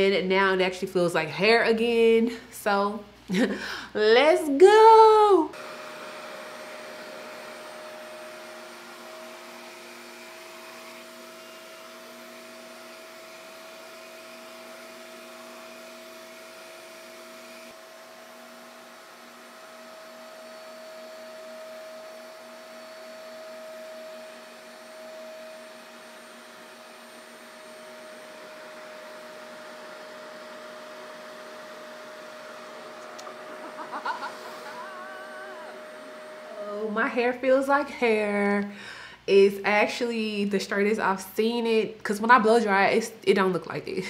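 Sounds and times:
blow dryer motor whine: 0:04.8 - 0:37.7.

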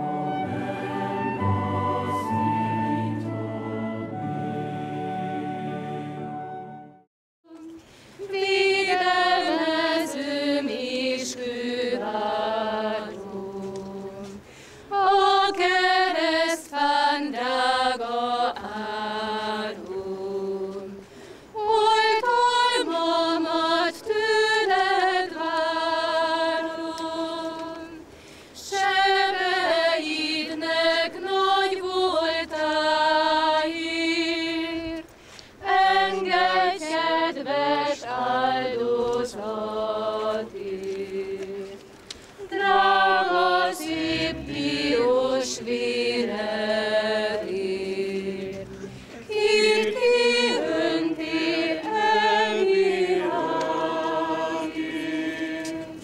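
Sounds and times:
women singing unaccompanied: 0:07.5 - 0:56.0.

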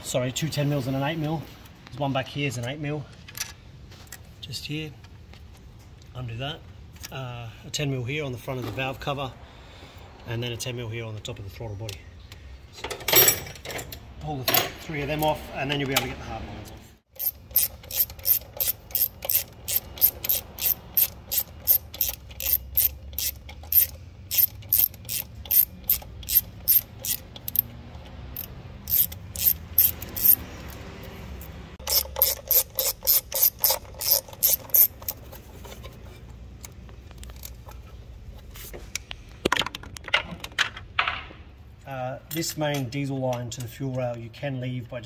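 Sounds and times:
hand ratchet clicking: 0:17.1 - 0:30.8, 0:31.4 - 0:35.2.

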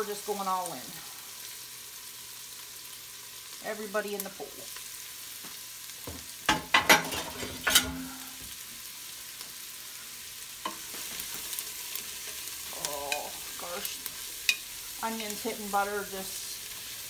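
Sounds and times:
vegetables sizzling in oil: 0:00.0 - 0:17.0
vegetables clattering into pot: 0:06.5 - 0:08.2.

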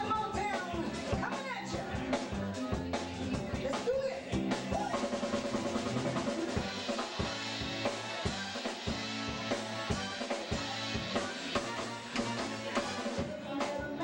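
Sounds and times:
drum kit beat: 0:00.0 - 0:14.0
live band music: 0:00.0 - 0:14.0.

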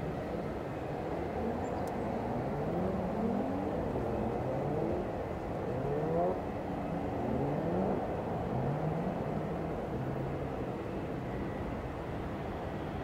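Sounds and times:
distant jet engine rumble: 0:00.0 - 0:13.0.

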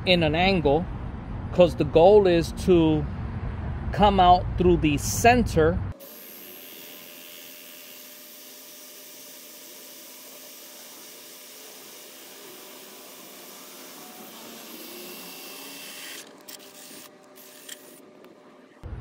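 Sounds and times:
drill whirring: 0:06.0 - 0:18.0.

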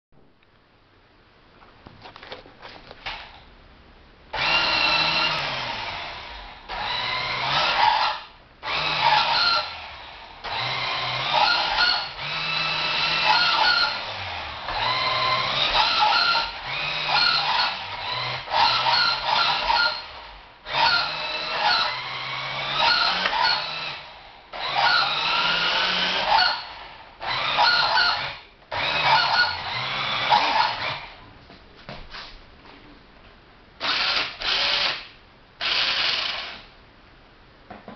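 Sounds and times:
toy car electric motor whining: 0:10.5 - 0:14.0, 0:20.7 - 0:23.9.

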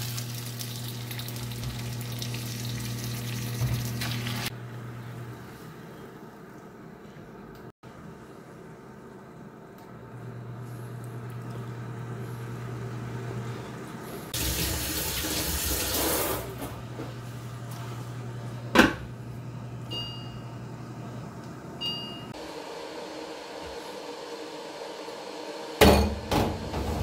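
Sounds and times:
induction cooktop humming: 0:00.0 - 0:27.0.

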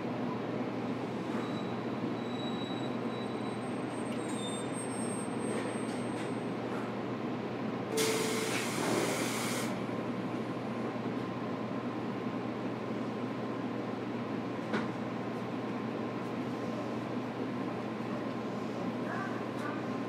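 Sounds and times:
faint wheel squeal: 0:01.3 - 0:06.4
air hissing: 0:08.0 - 0:09.7.

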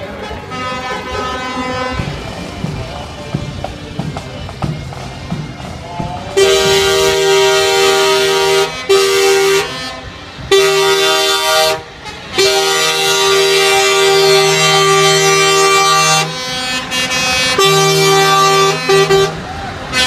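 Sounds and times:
truck air horn blasts: 0:00.0 - 0:02.2, 0:06.4 - 0:20.0.

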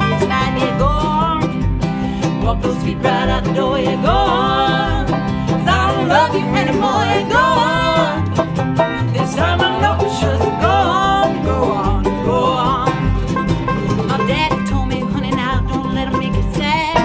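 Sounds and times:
acoustic guitar: 0:00.0 - 0:17.0
banjo: 0:00.0 - 0:17.0
fiddle: 0:00.0 - 0:17.0
mandolin: 0:00.0 - 0:17.0
upright bass plucking: 0:00.0 - 0:17.0.

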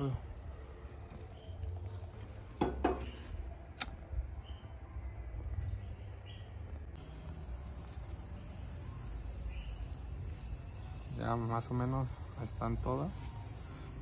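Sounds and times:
crickets chirping: 0:00.0 - 0:14.0
lighter clicking: 0:03.7 - 0:04.0.

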